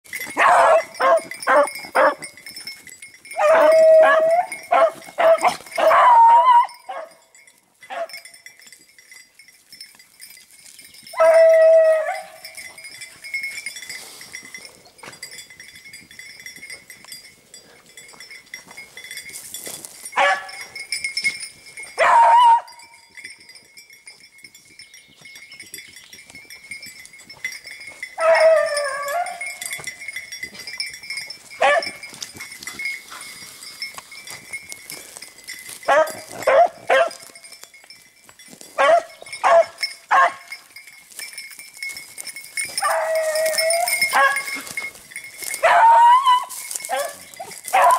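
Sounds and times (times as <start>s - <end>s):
beagle baying: 0.2s - 2.3s, 3.3s - 7.2s, 7.9s - 8.3s, 11.1s - 12.7s, 20.2s - 20.8s, 22.0s - 23.0s, 28.2s - 29.9s, 31.6s - 32.1s, 35.9s - 37.4s, 38.8s - 40.5s, 42.7s - 44.8s, 45.4s - 47.9s.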